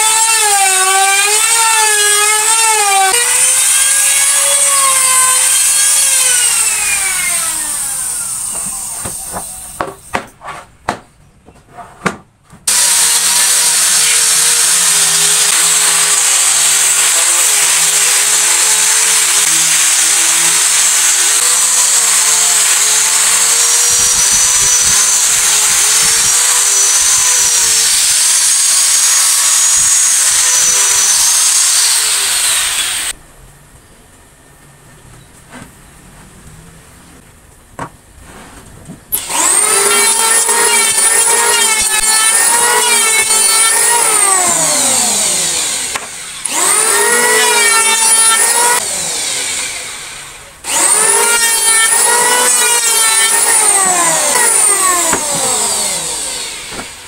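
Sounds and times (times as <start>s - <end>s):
power tool cutting wood: 0.0s - 10.3s, 12.7s - 33.2s, 39.1s - 57.0s
knocks: 8.5s - 12.7s.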